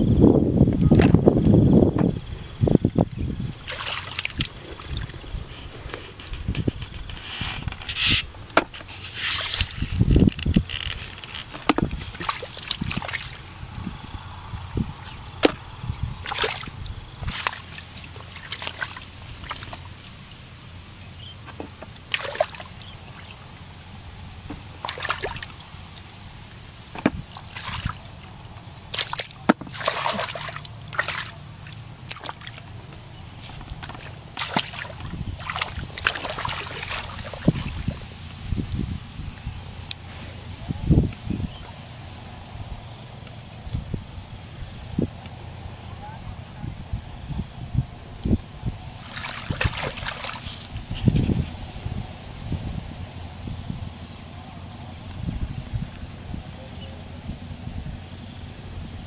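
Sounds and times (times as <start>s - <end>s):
muddy water sloshing: 2.5s - 46.5s, 48.1s - 52.1s
hands digging in wet mud: 3.5s - 10.0s, 11.1s - 13.4s, 16.2s - 19.9s, 24.6s - 26.0s, 27.2s - 32.7s, 33.3s - 38.1s, 49.0s - 51.5s.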